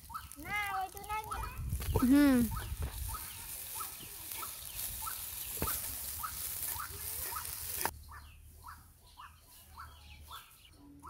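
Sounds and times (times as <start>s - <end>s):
onions sizzling in oil: 0.0s - 7.9s
bird chirping: 1.3s - 11.0s.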